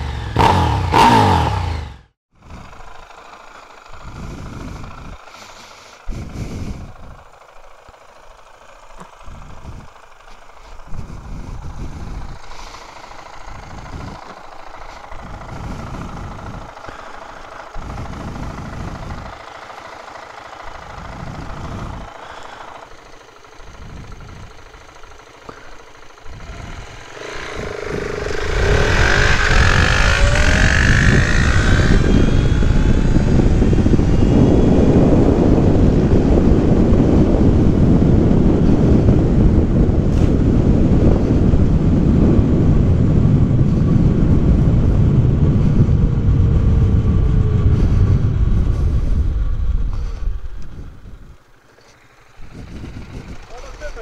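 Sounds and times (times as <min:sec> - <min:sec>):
motorcycle engine idling: 0:00.0 - 0:54.0
rush of wind: 0:03.8 - 0:54.0
electric motor whine: 0:23.8 - 0:36.4.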